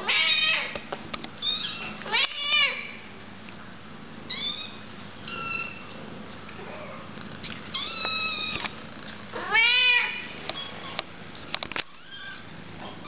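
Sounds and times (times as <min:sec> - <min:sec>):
kittens meowing: 0:04.3 - 0:05.8, 0:07.7 - 0:08.7, 0:09.4 - 0:11.0.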